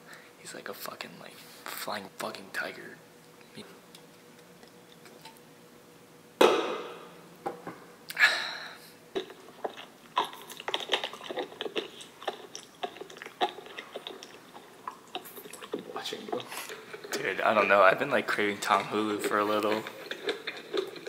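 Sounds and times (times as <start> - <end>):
chewing crunches: 9.1 - 17.7, 18.6 - 21.0.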